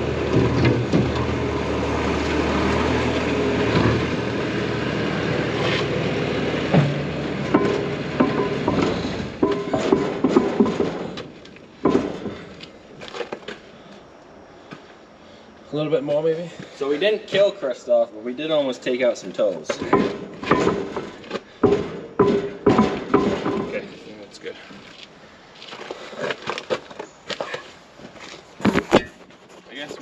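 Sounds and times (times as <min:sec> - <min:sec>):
metal clanks and knocks: 0:00.0 - 0:01.6, 0:03.6 - 0:04.2, 0:06.6 - 0:13.4, 0:19.6 - 0:24.0
engine running: 0:00.0 - 0:12.6.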